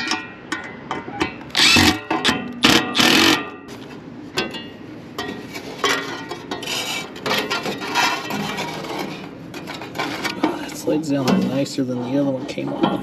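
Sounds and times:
loud burst of tool noise: 1.5 - 3.6.

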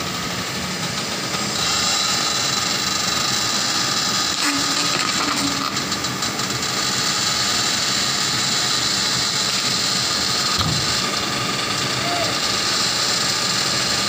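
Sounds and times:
excavator diesel engine running: 0.0 - 14.0
hydraulics working: 0.0 - 14.0
dull thump: 10.6 - 10.9.

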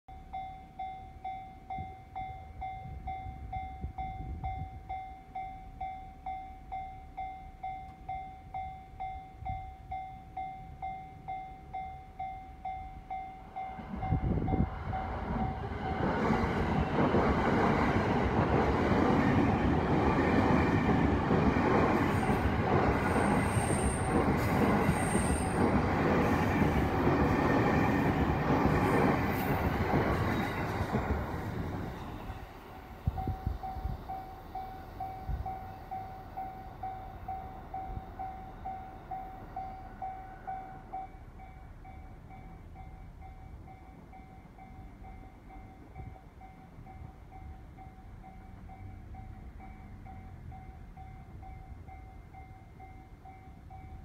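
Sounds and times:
train wheels rushing on rails: 13.5 - 41.0.

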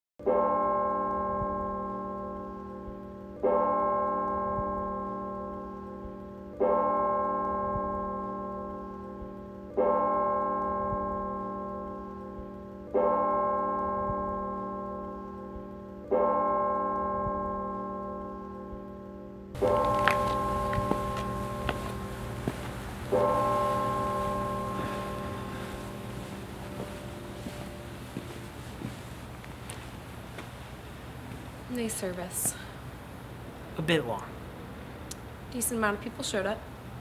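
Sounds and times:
bell tolling: 19.6 - 28.7.

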